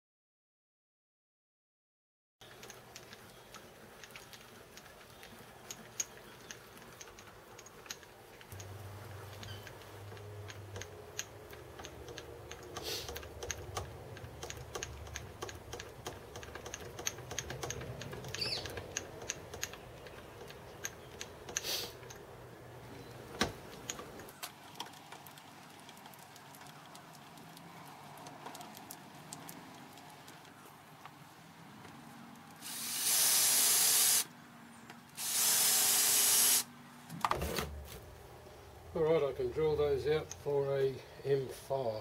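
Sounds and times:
handwheel clicking and ticking: 2.4s - 22.2s.

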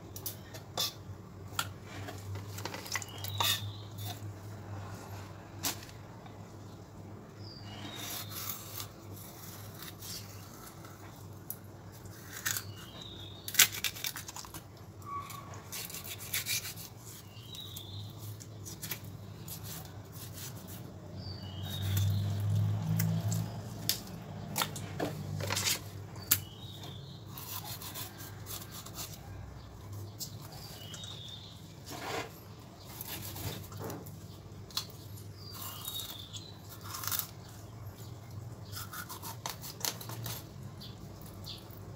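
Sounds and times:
knife scraping fish scales: 0.7s - 1.0s, 2.1s - 4.2s, 15.2s - 17.6s, 18.3s - 20.9s, 27.3s - 29.3s, 31.8s - 34.0s, 38.7s - 40.5s.

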